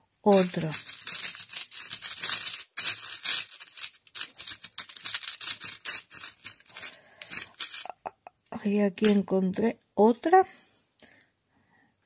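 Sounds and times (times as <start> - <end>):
metal charms clinking: 0.3 - 8.0.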